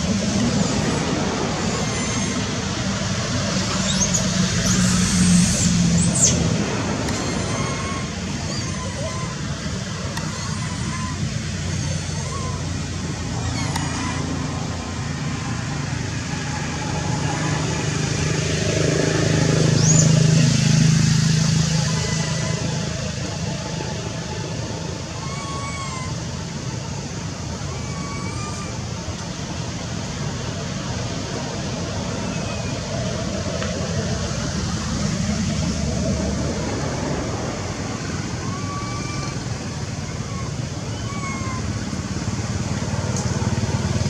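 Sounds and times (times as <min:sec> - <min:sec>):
monkey squealing: 0:00.0 - 0:15.7, 0:19.0 - 0:29.4, 0:35.0 - 0:44.0
low engine rumble: 0:00.0 - 0:44.0.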